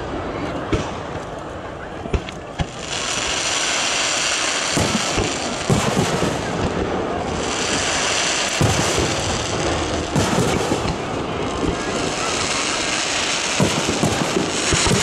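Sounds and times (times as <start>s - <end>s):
fireworks bursting: 0.0s - 15.0s
steady hiss: 2.6s - 15.0s.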